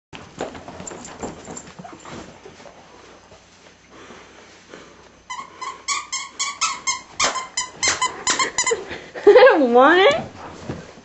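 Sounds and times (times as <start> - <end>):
puppy scuffling on carpet: 0.2 - 4.9, 10.2 - 11.0
toy squeaker squeaking: 5.3 - 8.8.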